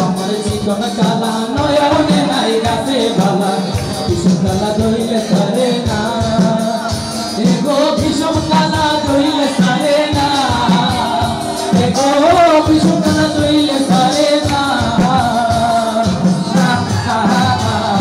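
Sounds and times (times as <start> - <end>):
live band playing: 0.0 - 18.0
man singing through microphone: 0.0 - 18.0.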